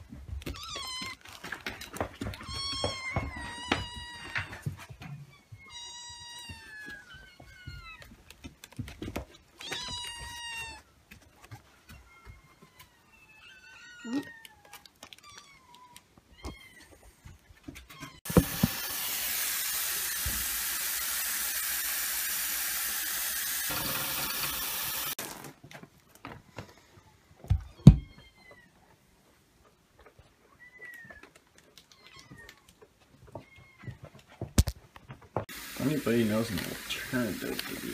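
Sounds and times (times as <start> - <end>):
tap water running into sink: 18.3 - 25.2, 35.5 - 37.9.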